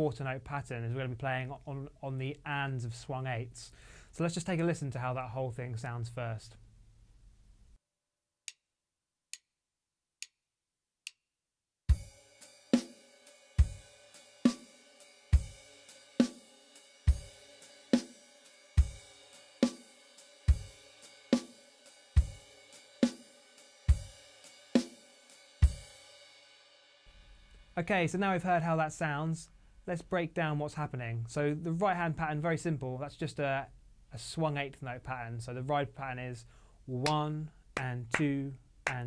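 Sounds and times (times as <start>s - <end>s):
drum kit playing blues shuffle: 11.9s - 26.0s, 36.9s - 39.0s.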